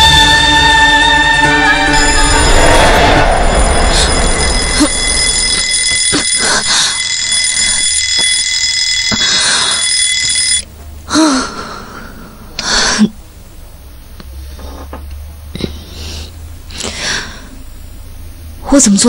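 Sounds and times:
alarm clock ringing: 1.9s - 10.7s
woman groaning sleepily: 4.0s - 5.1s, 6.0s - 7.0s, 11.1s - 13.2s.

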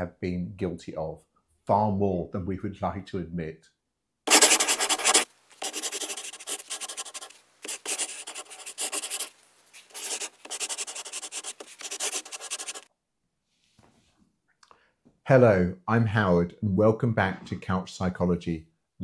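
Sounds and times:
pen scratching on paper: 4.3s - 12.9s.

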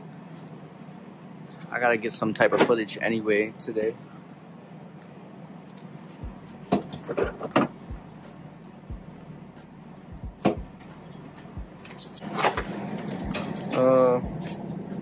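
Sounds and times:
low machine hum: 0.0s - 15.0s
knocks and rattles of items: 5.7s - 8.0s, 10.4s - 14.8s.

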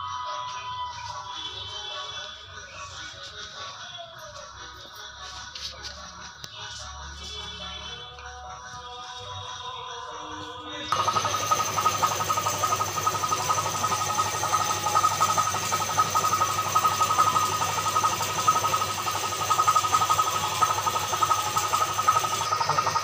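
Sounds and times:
small motor whining: 10.9s - 23.0s.

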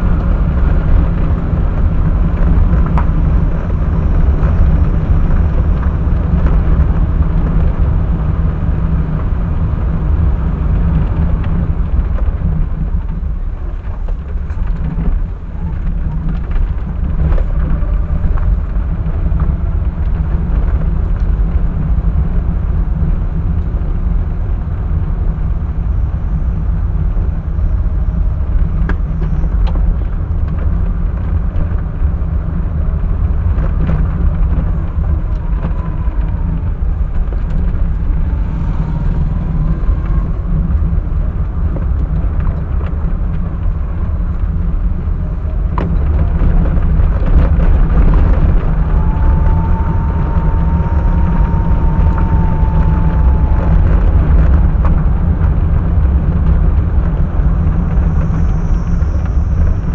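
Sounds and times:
car engine and road noise: 0.0s - 59.9s
faint wavering whine: 32.5s - 59.9s.

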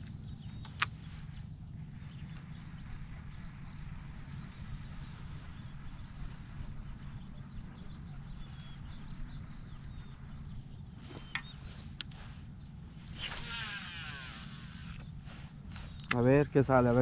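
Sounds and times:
wind rumble on microphone: 0.0s - 17.0s
sharp clicks: 0.6s - 1.0s, 16.0s - 16.4s
fishing reel whirring: 10.6s - 16.4s.

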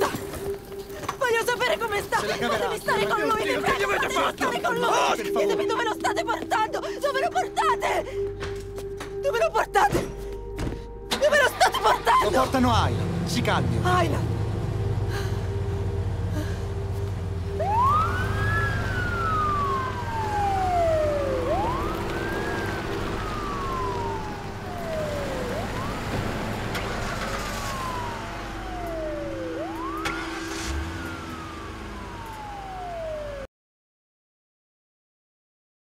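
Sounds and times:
emergency siren wailing: 0.0s - 33.5s
steady low rumble: 12.3s - 32.6s.

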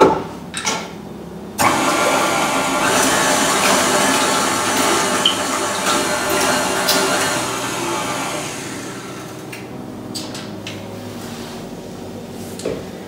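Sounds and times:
stand mixer motor running: 1.6s - 9.6s.

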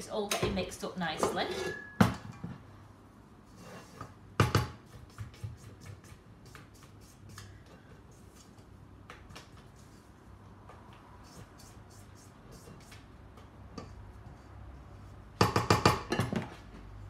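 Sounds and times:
spatula scraping a steel bowl: 1.2s - 2.0s, 3.5s - 4.2s.

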